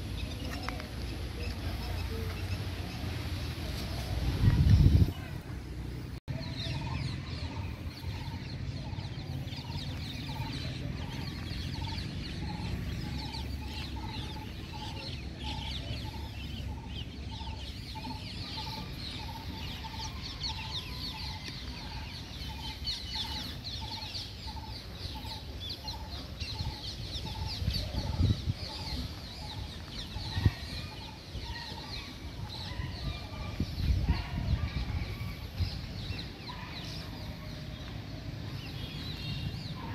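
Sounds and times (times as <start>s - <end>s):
chatter of high bird chirps: 6.3s - 39.9s.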